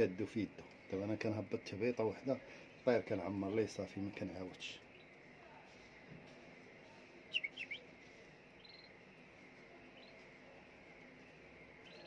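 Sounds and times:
canaries chirping: 6.9 - 10.5, 11.7 - 12.0.

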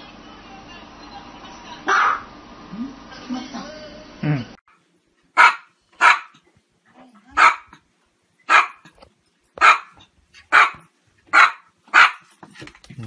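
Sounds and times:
dog barking: 1.9 - 2.3, 5.4 - 6.4, 7.3 - 7.8, 8.5 - 8.9, 9.6 - 12.4.

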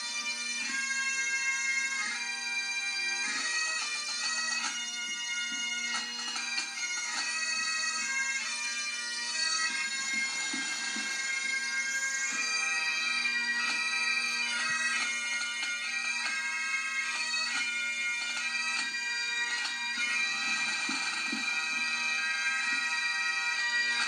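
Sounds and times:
bagpipes playing: 0.0 - 24.0
drums beating: 9.7 - 15.8, 19.6 - 21.9.

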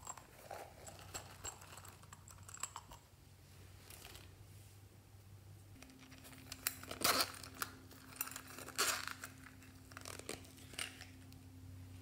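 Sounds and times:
handling clicks and rustles: 0.0 - 3.1, 5.7 - 11.4.

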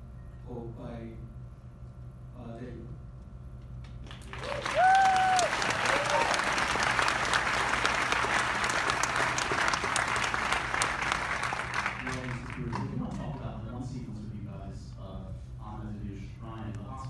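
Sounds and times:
audience applauding: 4.0 - 13.0
person whooping: 4.4 - 6.5.

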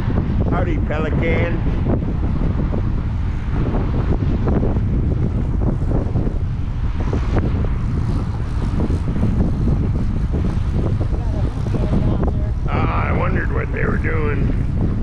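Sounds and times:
cars passing on highway: 0.0 - 13.3
wind buffeting microphone: 0.0 - 15.0.

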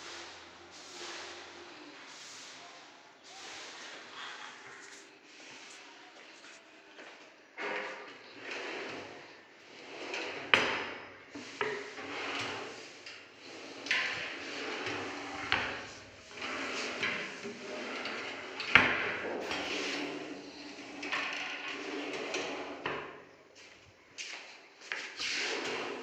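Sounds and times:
drawers sliding: 7.6 - 23.2, 25.2 - 26.0.

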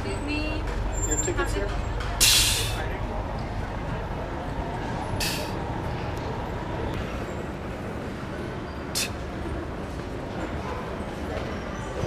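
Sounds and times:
bus engine idling: 0.0 - 11.9
compressed air hiss: 9.0 - 9.2.

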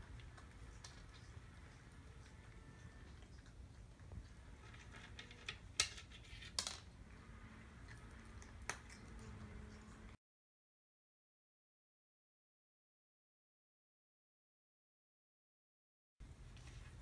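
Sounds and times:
low room hum: 0.0 - 10.2, 16.2 - 17.0.

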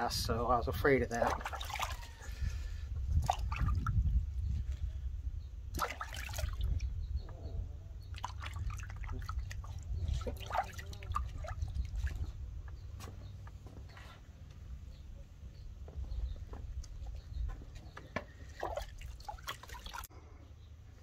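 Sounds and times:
water sloshing in a plastic tub: 0.6 - 5.0, 5.6 - 14.0, 16.3 - 20.2
small splashes and drips: 1.1 - 2.5, 3.1 - 4.1, 5.7 - 7.0, 8.0 - 12.4, 18.3 - 20.1.

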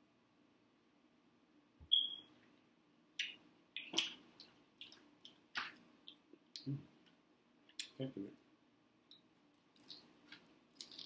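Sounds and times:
wet eating smacks: 3.2 - 6.7.

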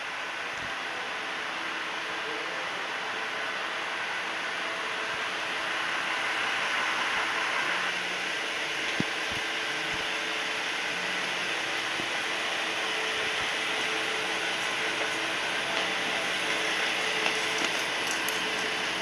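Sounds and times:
diesel railcar engine running: 0.0 - 19.0.

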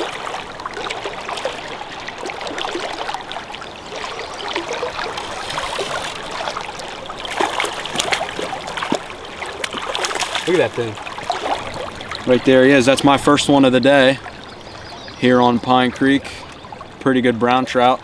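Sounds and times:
fish splashing in water: 0.0 - 13.0
creek water running: 0.0 - 18.0.

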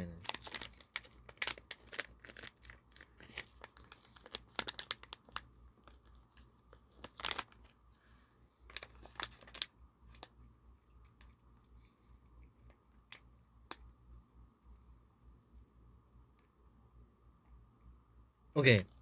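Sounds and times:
plastic pouch crinkling: 0.0 - 7.8, 8.7 - 10.3.

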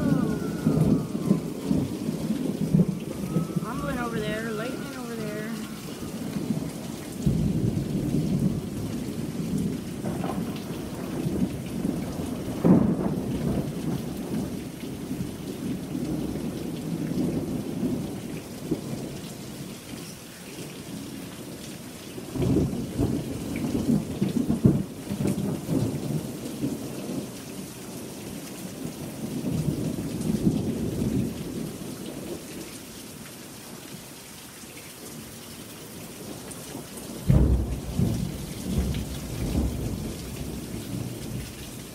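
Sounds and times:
thunder rumbling: 0.0 - 19.2, 22.2 - 27.4, 37.0 - 41.9
steady rain: 0.0 - 41.9.

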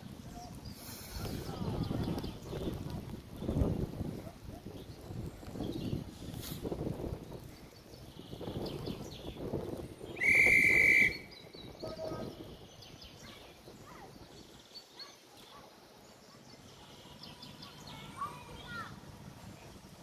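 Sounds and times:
high train whistle blast: 10.2 - 11.3.

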